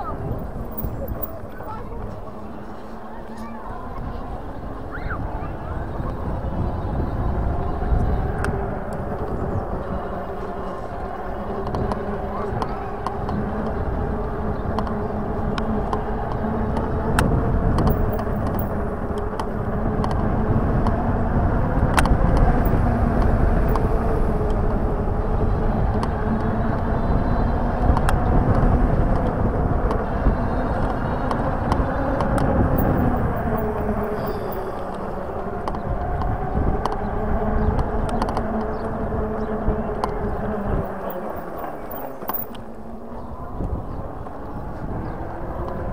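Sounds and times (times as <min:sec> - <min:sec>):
electric bike motor hum: 0:00.0 - 0:45.9
clicks and rattles: 0:17.8 - 0:18.8, 0:40.8 - 0:42.6.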